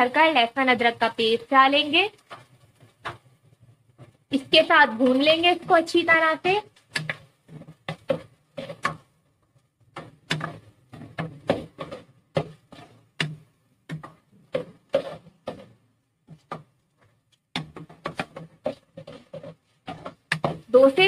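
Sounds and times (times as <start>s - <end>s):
spatula scraping a pot: 4.3s - 9.2s, 9.8s - 21.0s.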